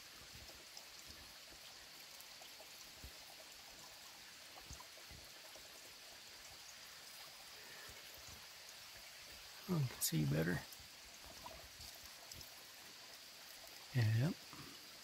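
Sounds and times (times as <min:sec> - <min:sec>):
creek rushing: 0:06.8 - 0:14.9.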